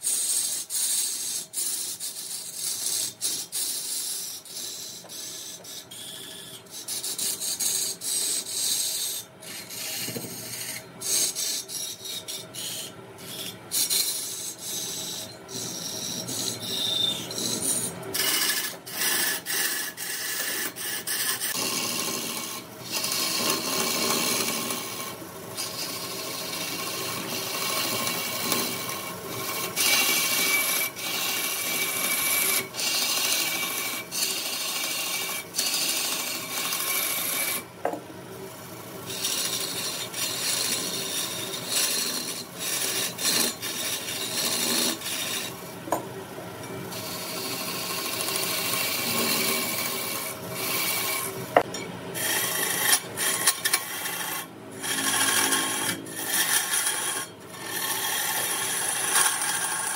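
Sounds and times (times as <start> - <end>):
wood being sanded: 13.7 - 37.7, 39.1 - 45.6, 46.9 - 59.9.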